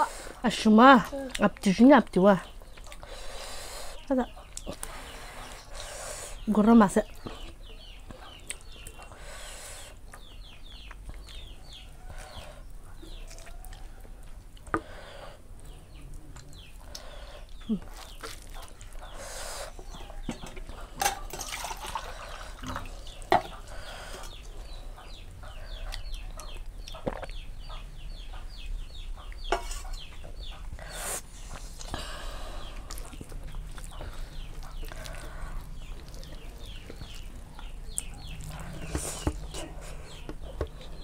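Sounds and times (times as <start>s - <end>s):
chickens clucking: 7.0s - 30.9s, 32.4s - 41.0s.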